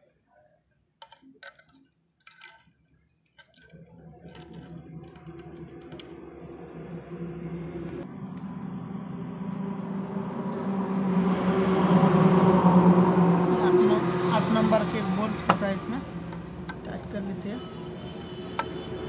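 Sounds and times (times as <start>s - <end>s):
small metal parts clinking: 1.0s - 6.0s
vehicle engine approaching: 3.6s - 19.0s.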